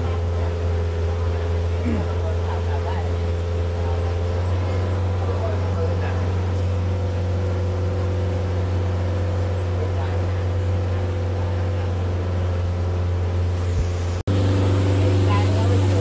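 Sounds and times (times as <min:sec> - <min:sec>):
boat engine humming: 0:00.0 - 0:16.0.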